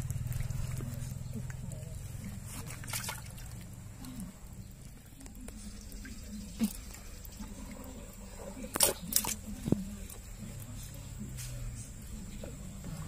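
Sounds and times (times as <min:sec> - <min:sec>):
water splashing and dripping: 0:00.0 - 0:11.0
low steady hum: 0:00.0 - 0:13.0.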